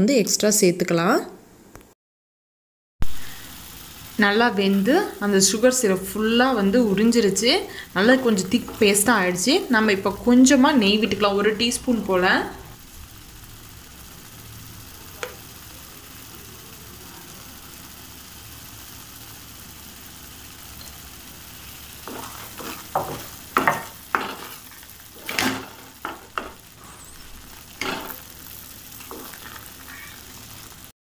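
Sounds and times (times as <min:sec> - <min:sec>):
food sizzling in ghee: 0:03.0 - 0:31.0
wooden spatula scraping pan: 0:22.0 - 0:27.1.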